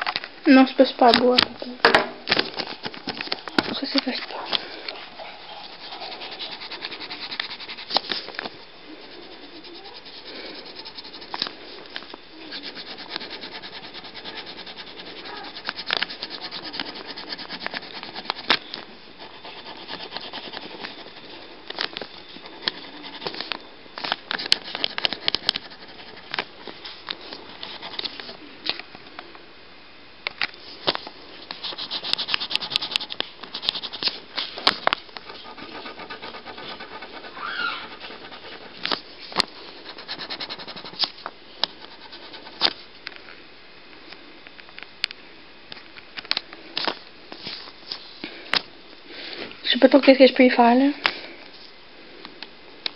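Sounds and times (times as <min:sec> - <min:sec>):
pen scribbling on paper: 0:05.1 - 0:08.3, 0:09.0 - 0:11.4, 0:12.4 - 0:18.6, 0:19.2 - 0:21.4, 0:22.5 - 0:23.5, 0:24.4 - 0:26.3, 0:31.6 - 0:34.2, 0:35.3 - 0:39.0, 0:39.8 - 0:41.0, 0:41.8 - 0:42.6.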